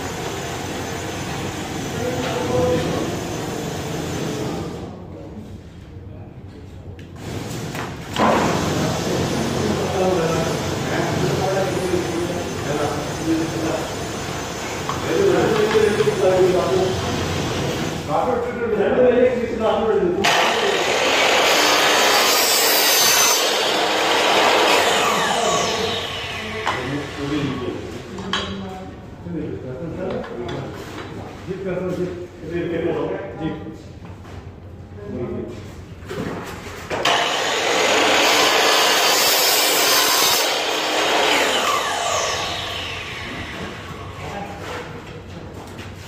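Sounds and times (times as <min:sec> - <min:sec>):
miter saw cutting metal: 0:20.2 - 0:27.7, 0:37.0 - 0:44.1.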